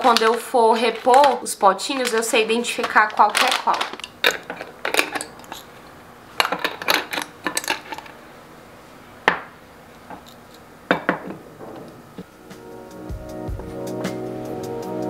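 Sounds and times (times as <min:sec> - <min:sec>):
glass jars clinking: 0:02.8 - 0:05.7, 0:06.4 - 0:08.1.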